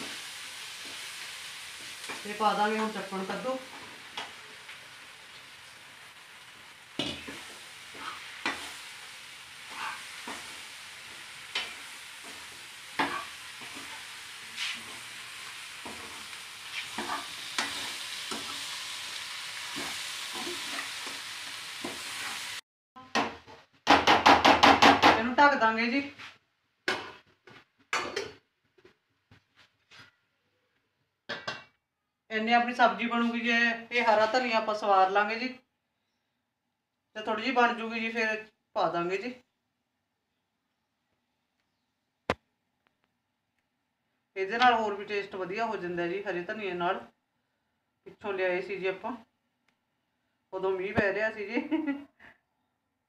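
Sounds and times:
vegetables sizzling in pot: 0.0 - 22.6.

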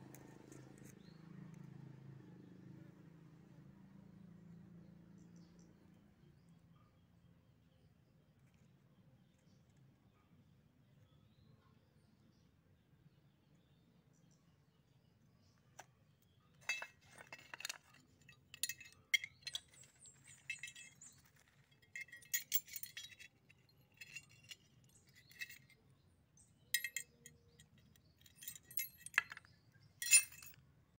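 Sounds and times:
small steel parts clinking: 16.6 - 30.7.

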